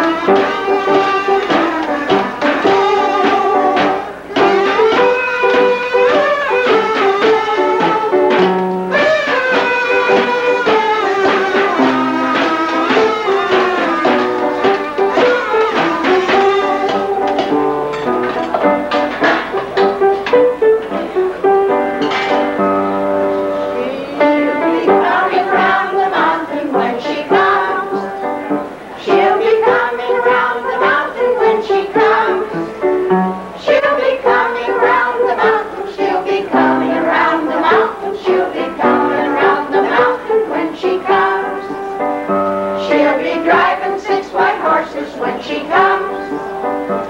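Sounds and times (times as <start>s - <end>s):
buzzy kazoo horns playing melody: 0.0s - 17.1s
band playing instrumental tune: 0.0s - 47.0s.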